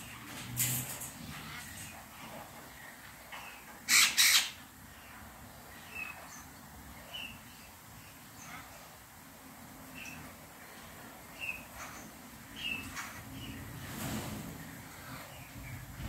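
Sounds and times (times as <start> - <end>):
parrots squawking: 3.8 - 4.6.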